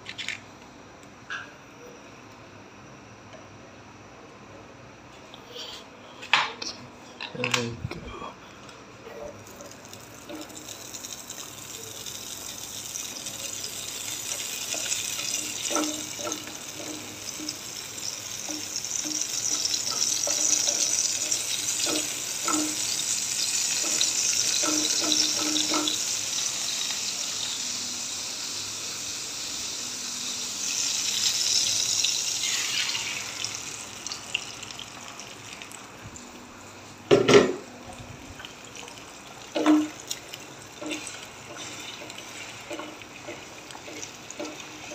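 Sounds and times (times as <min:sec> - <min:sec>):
butter sizzling in frying pan: 0:09.4 - 0:36.0, 0:38.4 - 0:44.9.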